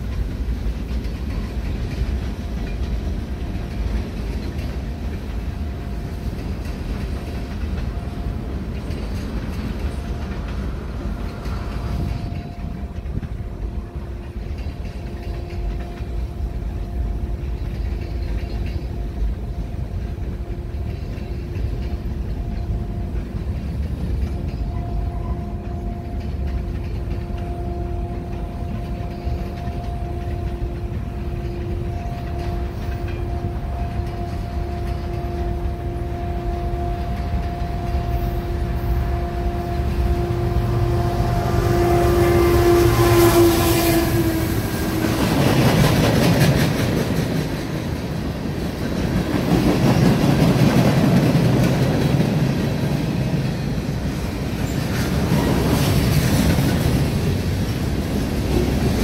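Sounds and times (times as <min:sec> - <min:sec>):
freight train rumbling: 0:00.0 - 0:59.0
two-note hum: 0:24.6 - 0:45.8.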